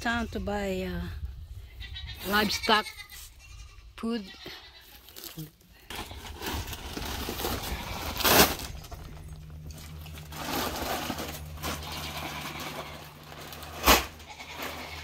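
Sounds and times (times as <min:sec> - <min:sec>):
low steady hum: 0:00.0 - 0:15.0
sacks rustling and scraping: 0:04.9 - 0:15.0.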